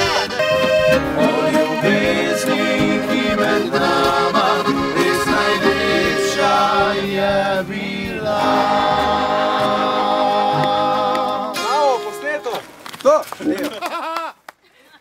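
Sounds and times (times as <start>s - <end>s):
double bass: 0.0s - 11.8s
button accordion: 0.0s - 12.8s
guitar: 0.0s - 13.0s.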